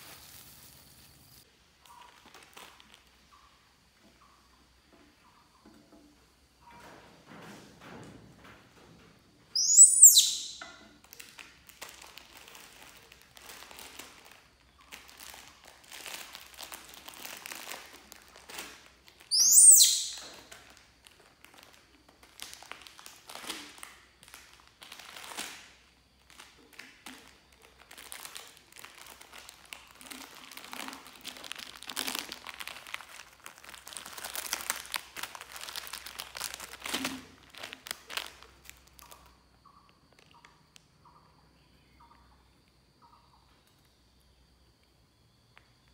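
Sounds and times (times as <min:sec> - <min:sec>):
crinkling and rustling of handling: 0:00.0 - 0:09.6, 0:10.6 - 0:19.3, 0:20.1 - 0:40.9
baby monkey squealing: 0:09.6 - 0:10.6, 0:19.3 - 0:20.2.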